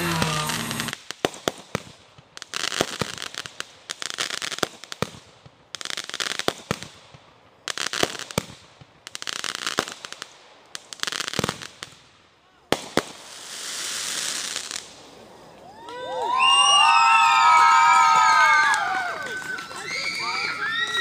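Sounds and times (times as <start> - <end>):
fireworks reports: 0.0 - 1.1, 18.6 - 21.0
crackling hissing firework bursts: 0.0 - 21.0.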